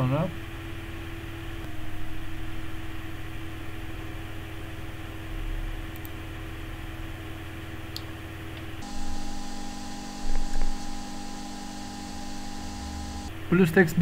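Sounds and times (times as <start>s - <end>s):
faint constant tone: 8.8s - 13.3s.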